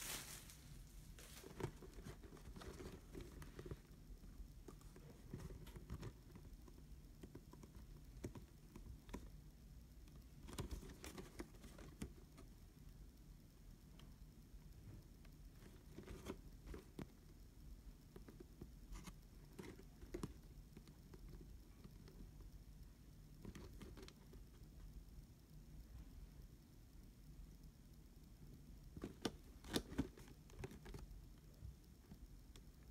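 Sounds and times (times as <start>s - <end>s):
paper rustling: 0.0s - 3.8s.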